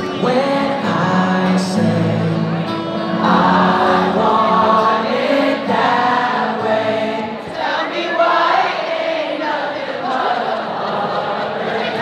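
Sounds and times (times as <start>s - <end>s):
group singing a pop song: 3.2s - 12.0s.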